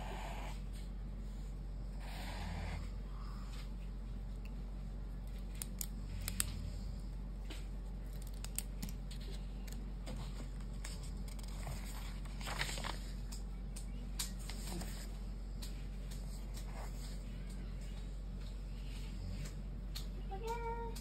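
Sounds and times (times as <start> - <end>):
book page turning: 7.6 - 17.3.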